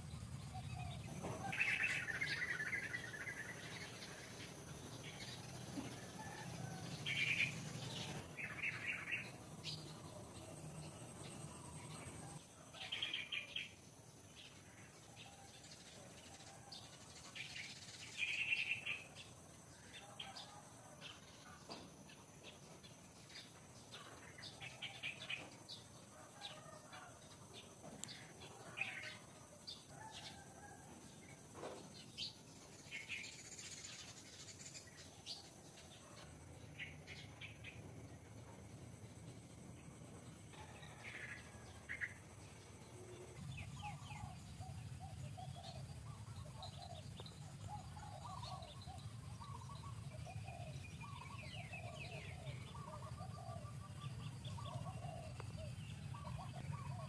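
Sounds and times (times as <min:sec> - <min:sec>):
birds chirping: 0:00.0 - 0:12.4, 0:40.6 - 0:57.0.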